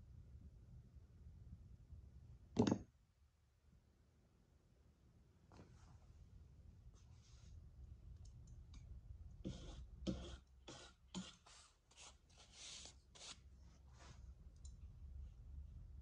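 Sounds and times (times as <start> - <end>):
tool scraping clay: 9.4 - 13.4.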